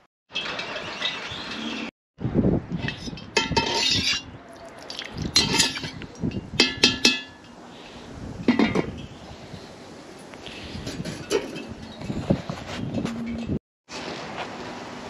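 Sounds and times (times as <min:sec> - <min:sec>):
metal ladle clinking on pot: 0:03.3 - 0:04.3, 0:05.4 - 0:07.5.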